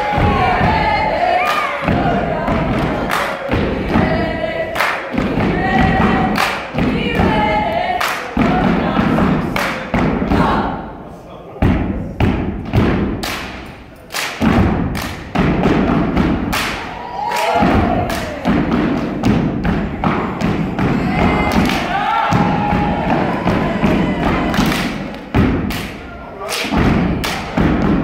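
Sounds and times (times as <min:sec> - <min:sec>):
feet stomping and hands clapping: 0:00.0 - 0:10.5, 0:11.7 - 0:28.0
people shouting: 0:16.8 - 0:18.7, 0:19.8 - 0:24.8.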